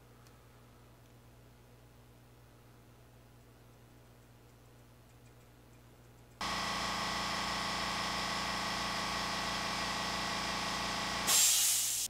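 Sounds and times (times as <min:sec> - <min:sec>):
air compressor motor hum: 0:06.4 - 0:12.0.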